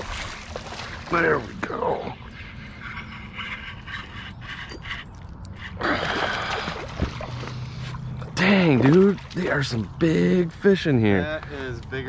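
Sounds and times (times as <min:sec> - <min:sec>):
water splashing: 0:00.0 - 0:02.2, 0:05.8 - 0:10.0.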